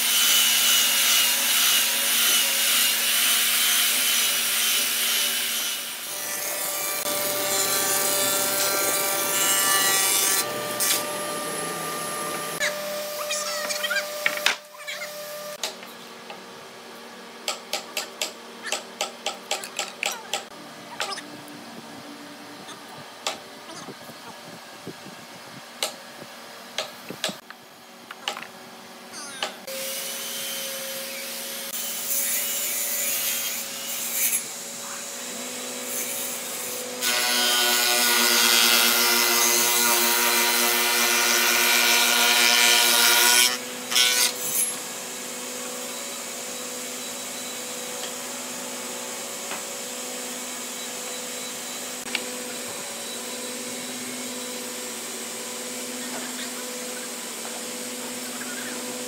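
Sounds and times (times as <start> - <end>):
cutter head cutting wood: 0.0 - 15.8.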